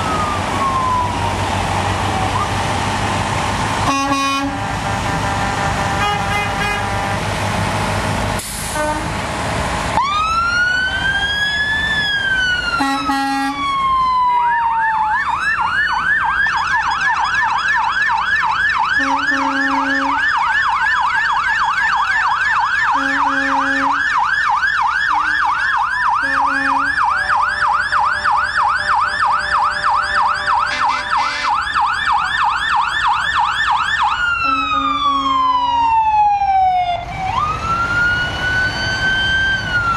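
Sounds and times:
fire truck siren wailing and yelping: 0:00.0 - 0:39.9
fire truck horn blasts: 0:03.8 - 0:07.6, 0:08.5 - 0:09.2, 0:12.8 - 0:13.7, 0:19.0 - 0:20.4, 0:22.9 - 0:24.1, 0:25.1 - 0:25.6, 0:26.2 - 0:31.8, 0:34.4 - 0:35.6.

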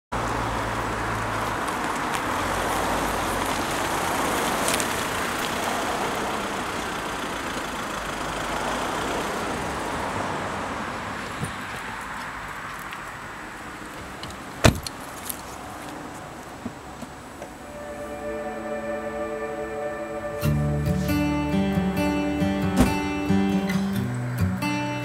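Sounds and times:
tyres rolling on tarmac: 0:00.2 - 0:17.5
car door click: 0:14.6 - 0:15.0, 0:22.8 - 0:23.1.

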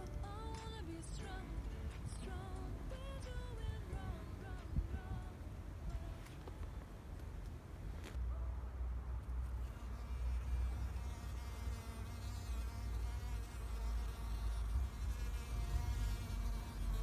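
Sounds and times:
bee buzzing in flight: 0:09.5 - 0:17.0.

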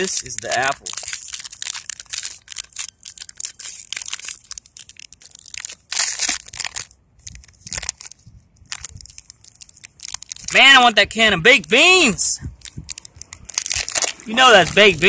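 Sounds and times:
foil wrapper crinkling: 0:00.0 - 0:11.8, 0:12.5 - 0:15.0.

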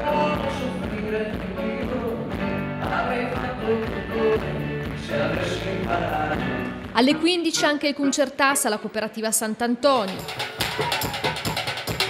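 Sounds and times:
person singing: 0:00.0 - 0:07.8
acoustic guitar: 0:00.0 - 0:08.6
live band playing: 0:00.0 - 0:08.8, 0:09.9 - 0:12.0.

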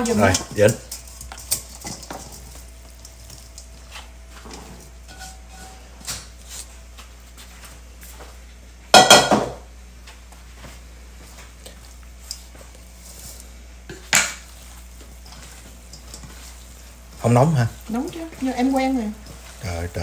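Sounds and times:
metal cookware clattering: 0:00.0 - 0:03.7, 0:04.4 - 0:06.1, 0:08.9 - 0:09.6.

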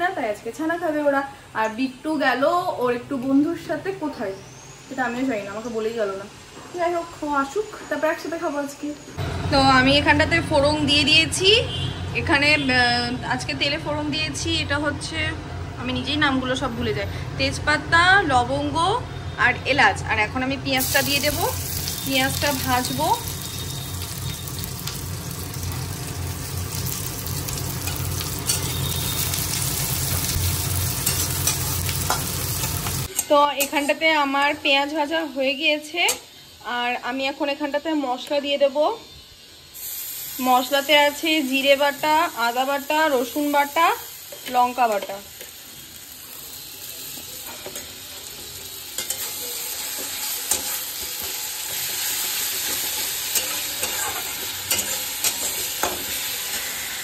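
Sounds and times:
onions sizzling in oil: 0:00.0 - 0:15.2, 0:15.8 - 0:57.0
spatula scraping pan: 0:49.0 - 0:57.0.

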